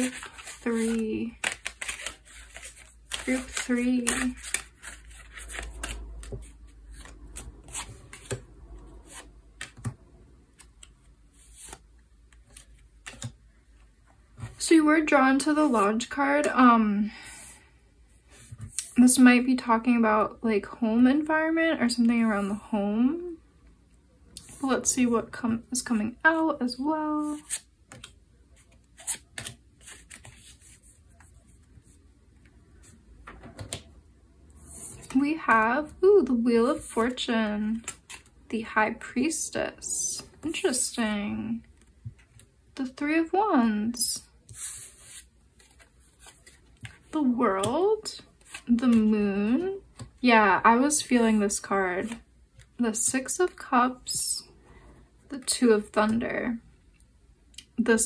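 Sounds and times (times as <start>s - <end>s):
cards shuffling and snapping: 0.0s - 8.4s, 9.1s - 13.4s, 27.3s - 30.7s.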